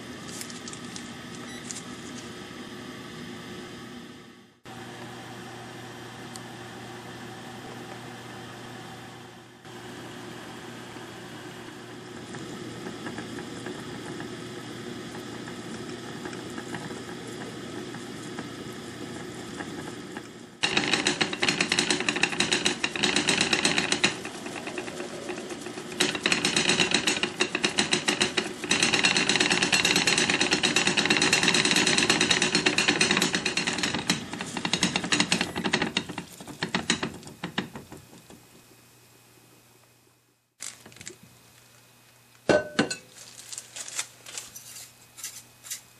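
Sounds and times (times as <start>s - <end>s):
steam hissing in pot: 9.7s - 38.2s
rattling boiling sputter: 11.6s - 38.6s.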